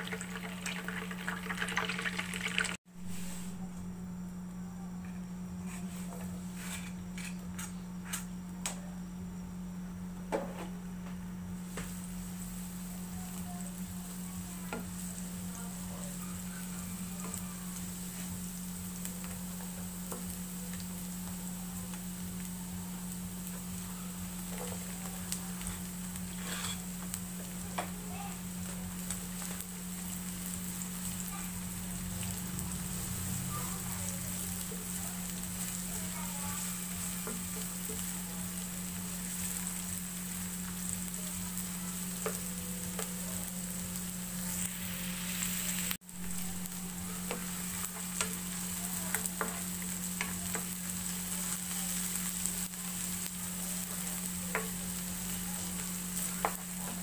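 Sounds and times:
garlic and onion sizzling in oil: 0:00.0 - 0:04.5, 0:05.3 - 0:08.6, 0:10.0 - 0:57.0
steady low hum: 0:00.0 - 0:51.4
spatula scraping pan: 0:26.3 - 0:26.9.

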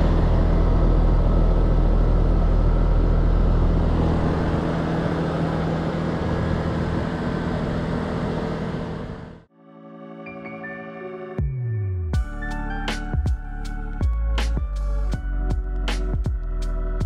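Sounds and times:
compressor hum: 0:00.0 - 0:09.5
heavy low rumble: 0:00.0 - 0:09.5.

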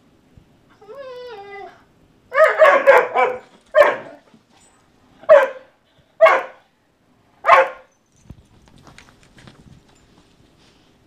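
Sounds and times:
dog barking in play: 0:02.3 - 0:04.3, 0:05.2 - 0:06.7, 0:07.4 - 0:07.9.

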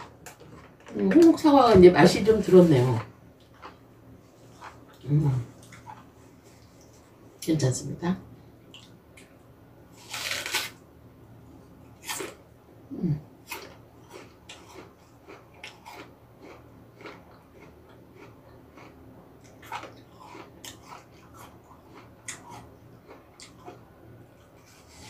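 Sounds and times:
apple crunching: 0:10.0 - 0:10.8, 0:11.9 - 0:12.4, 0:13.4 - 0:25.0.

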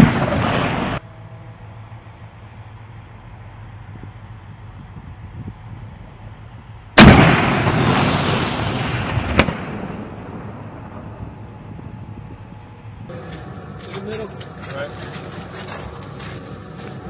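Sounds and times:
mortar firing blast: 0:00.0 - 0:01.0, 0:07.0 - 0:11.3
rumbling echo: 0:00.0 - 0:01.0, 0:07.0 - 0:13.8
low engine rumble: 0:00.0 - 0:17.0
sharp crack: 0:07.0 - 0:10.4.

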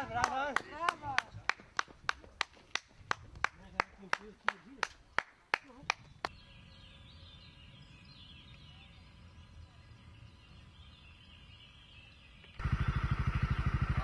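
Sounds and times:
hand claps: 0:00.2 - 0:06.1
birds singing faintly: 0:02.9 - 0:14.0.

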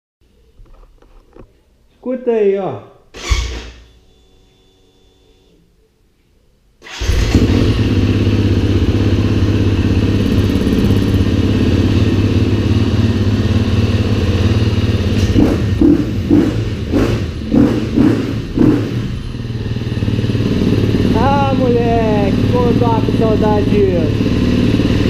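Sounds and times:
dirt bike engine revving: 0:06.9 - 0:25.0.

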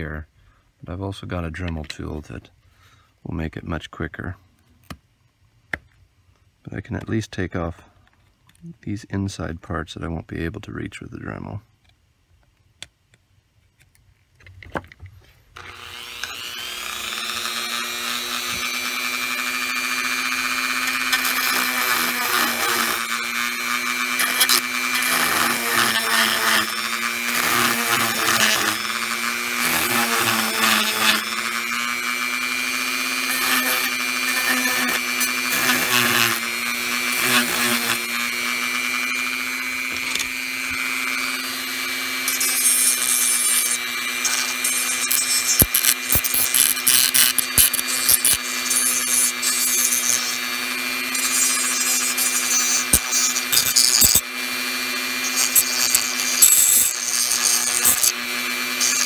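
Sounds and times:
rotary tool whining: 0:15.5 - 0:59.0
sanding drum rasping on plastic: 0:51.1 - 0:54.2, 0:55.1 - 0:59.0.

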